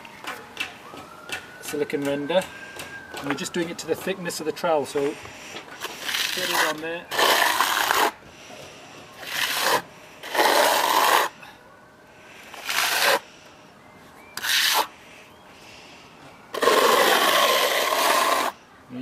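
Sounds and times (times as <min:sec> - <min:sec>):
trowel scraping render on wall: 0:05.8 - 0:08.2, 0:09.2 - 0:11.3, 0:12.5 - 0:13.2, 0:14.4 - 0:14.9, 0:16.5 - 0:18.6.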